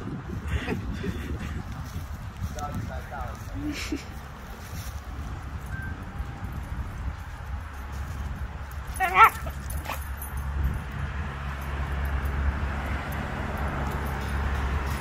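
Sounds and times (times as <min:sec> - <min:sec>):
dog yelping: 0:08.9 - 0:10.1.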